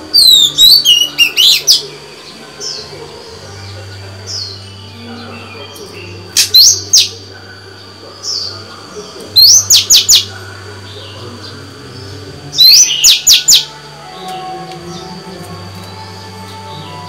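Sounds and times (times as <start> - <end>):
bird singing whistled phrases: 0.2 - 1.8, 12.6 - 13.7.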